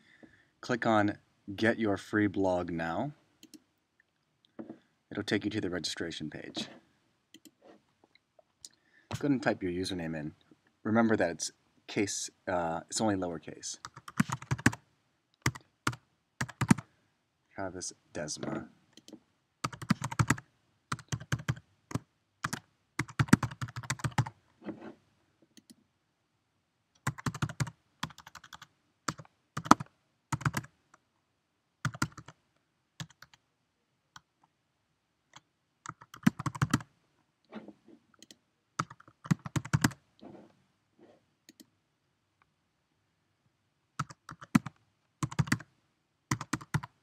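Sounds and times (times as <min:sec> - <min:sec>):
typing on computer keyboard: 0:13.9 - 0:14.8, 0:15.4 - 0:16.8, 0:19.0 - 0:24.3, 0:27.0 - 0:30.7, 0:31.8 - 0:32.4, 0:33.0 - 0:33.4, 0:35.8 - 0:36.9, 0:38.2 - 0:40.0, 0:44.0 - 0:45.6, 0:46.3 - 0:47.0.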